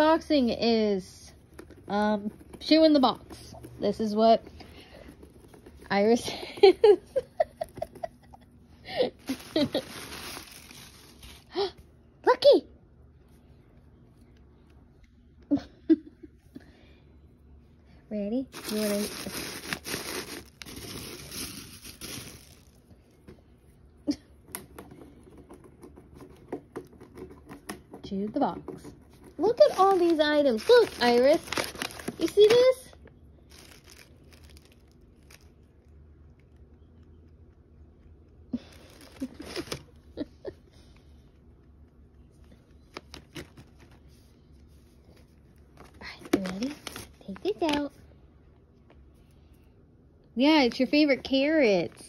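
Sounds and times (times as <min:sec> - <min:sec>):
tissue paper rustling in a box: 0:09.2 - 0:11.5, 0:18.5 - 0:22.8, 0:29.4 - 0:32.8, 0:33.5 - 0:35.4.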